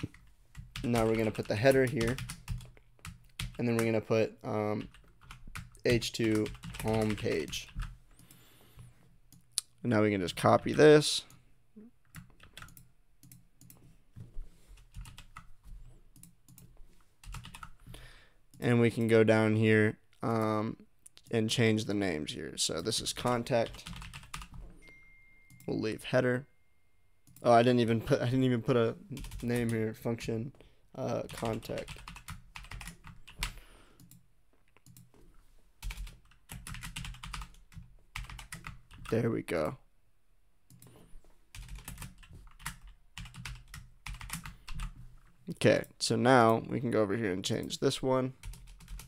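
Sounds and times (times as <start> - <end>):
computer keyboard typing: 0.0 - 4.0, 4.7 - 8.4, 12.1 - 13.8, 14.8 - 15.5, 16.2 - 17.8, 23.2 - 24.6, 29.2 - 29.8, 31.3 - 34.2, 34.8 - 35.1, 35.8 - 39.2, 40.7 - 44.9, 48.4 - 49.0.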